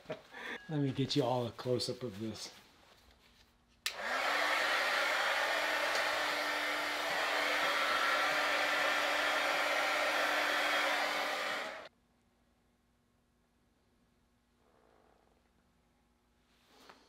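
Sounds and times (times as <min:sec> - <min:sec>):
heat gun blowing: 0:03.9 - 0:11.9.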